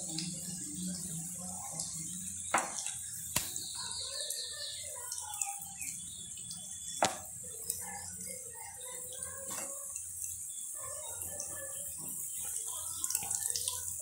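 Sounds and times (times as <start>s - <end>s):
food sizzling in hot oil: 0.0s - 14.0s
wooden spatula knocking on pan: 2.5s - 2.8s, 7.0s - 7.3s.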